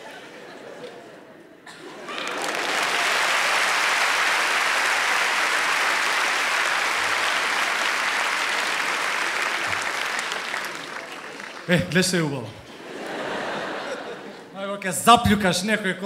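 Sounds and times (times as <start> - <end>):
audience applauding: 1.7 - 12.4.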